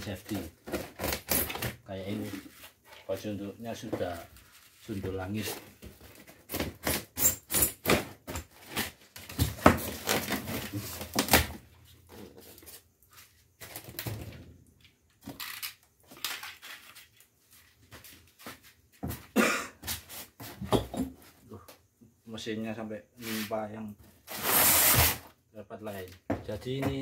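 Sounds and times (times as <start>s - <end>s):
rubs and knocks of packing: 0.1s - 3.0s, 3.8s - 14.0s
styrofoam box lid scraping: 24.3s - 25.2s.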